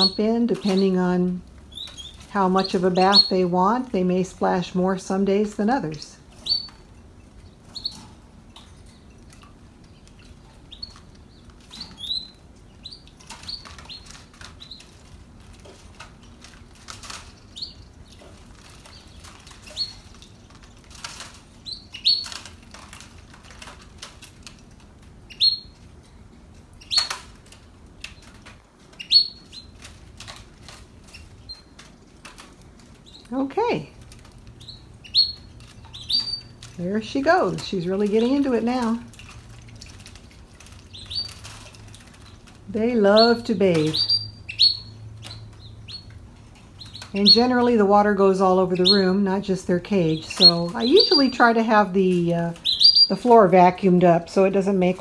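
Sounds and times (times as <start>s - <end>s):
canaries cheeping: 0.0s - 55.0s
bird splashing and fluttering wings: 6.3s - 33.3s, 33.9s - 51.9s.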